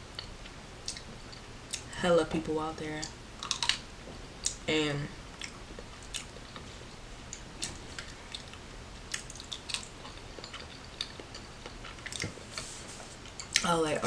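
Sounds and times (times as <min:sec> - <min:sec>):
person chewing: 0:03.4 - 0:03.8, 0:05.4 - 0:13.6
wet mouth clicks and smacks: 0:03.4 - 0:03.8.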